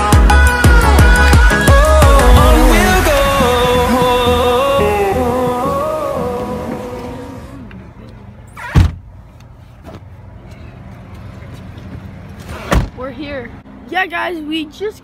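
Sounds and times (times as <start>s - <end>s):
music: 0.0s - 7.6s
low car rumble: 1.2s - 13.8s.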